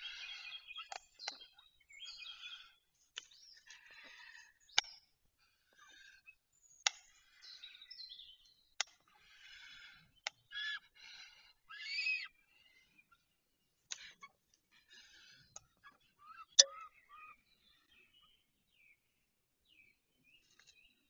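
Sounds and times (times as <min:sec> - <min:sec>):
bird calls and chirps: 0:00.0 - 0:21.0.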